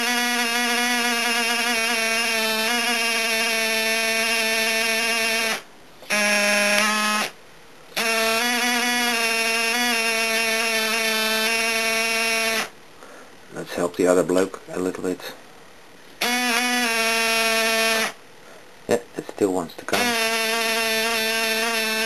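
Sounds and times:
small air compressor buzzing: 0:00.0 - 0:12.8, 0:16.2 - 0:18.2, 0:19.9 - 0:22.0.

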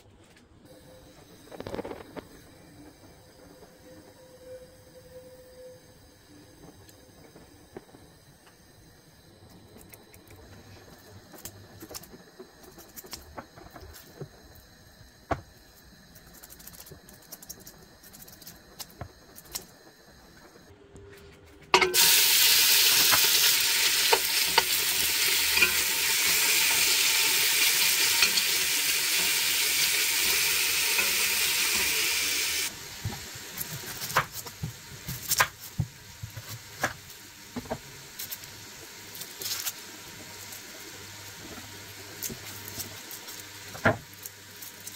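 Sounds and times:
meat sizzling in hot oil: 0:21.8 - 0:44.9.

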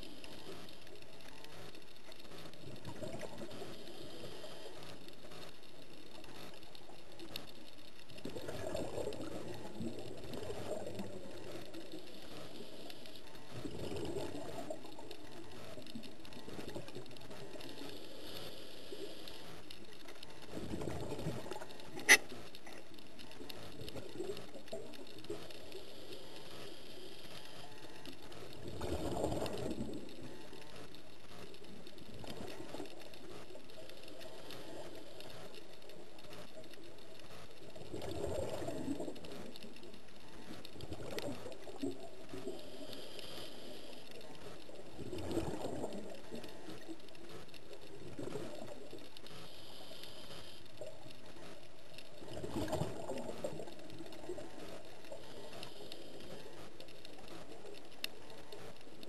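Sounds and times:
faint regulator hiss: 0:00.0 - 0:52.4, 0:53.0 - 0:59.0
exhaled bubbles underwater: 0:08.2 - 0:11.4, 0:37.7 - 0:39.3, 0:44.9 - 0:46.4, 0:52.2 - 0:54.6.

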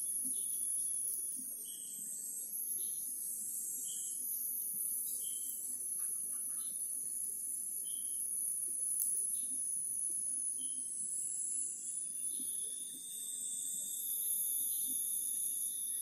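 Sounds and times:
high-pitched insect drone: 0:00.0 - 0:06.9, 0:07.7 - 0:08.3, 0:08.9 - 0:16.0
insect chirps: 0:00.0 - 0:16.0.

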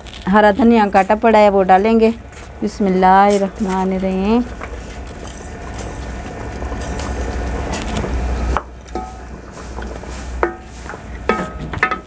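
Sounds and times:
ladle scraping a metal pot: 0:06.8 - 0:12.0.

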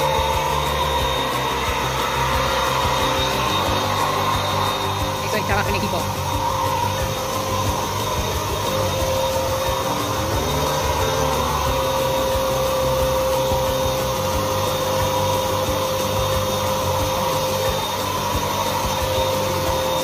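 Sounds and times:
power tool motor whine: 0:00.0 - 0:20.0.

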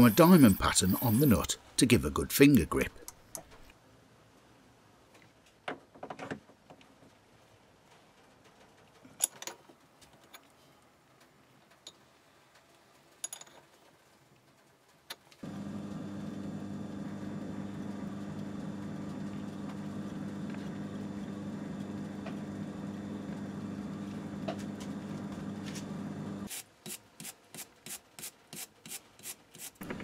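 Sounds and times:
lathe running: 0:15.4 - 0:26.5.

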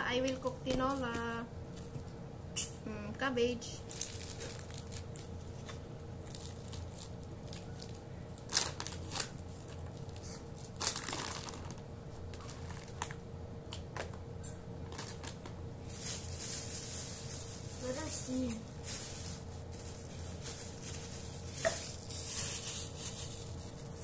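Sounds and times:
plastic bags rustling: 0:00.4 - 0:01.9, 0:03.8 - 0:13.2, 0:14.8 - 0:24.0.

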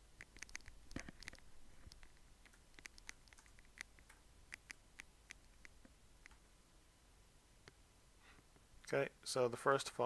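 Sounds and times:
faint keyboard typing: 0:00.0 - 0:06.4.

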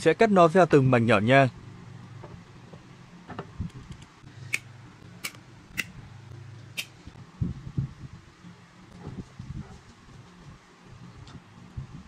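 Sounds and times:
low steady hum: 0:00.0 - 0:12.0
metallic tool clicks: 0:03.9 - 0:05.9.

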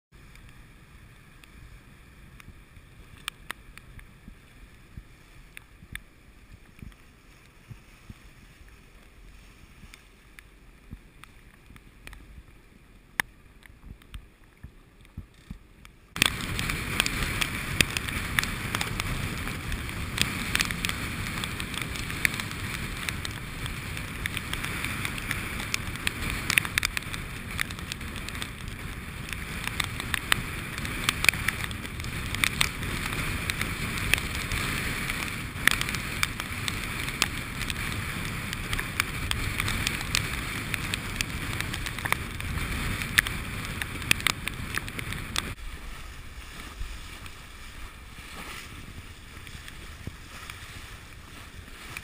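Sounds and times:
wind buffeting microphone: 0:15.1 - 0:52.0
water rushing past hull: 0:28.5 - 0:52.0.

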